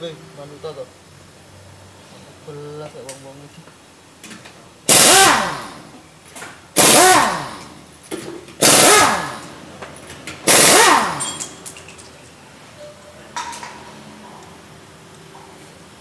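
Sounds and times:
power tool whining bursts: 4.9s - 5.9s, 6.8s - 7.7s, 8.6s - 9.5s, 10.5s - 11.4s.

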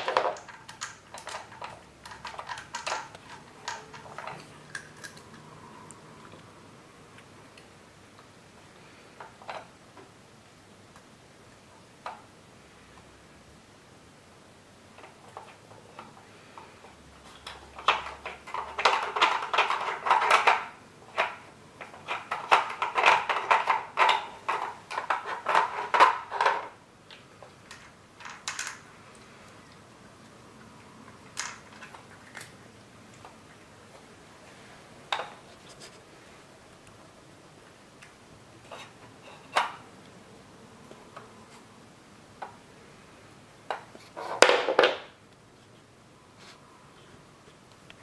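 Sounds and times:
plastic puzzle clicking and clattering: 0.0s - 5.5s, 9.1s - 10.1s, 14.9s - 29.8s, 31.0s - 34.1s, 43.6s - 45.2s.

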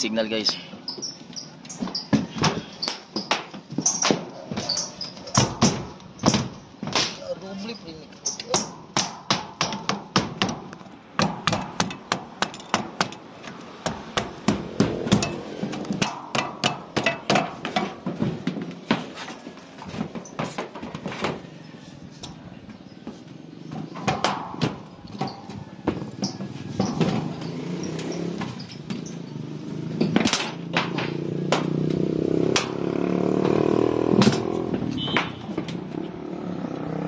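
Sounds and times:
hammer on metal pole: 13.8s - 17.9s.

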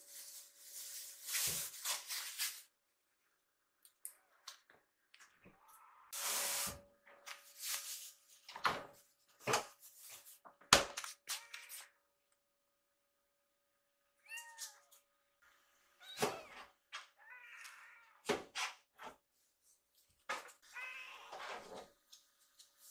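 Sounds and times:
kitten meowing: 14.2s - 14.8s.

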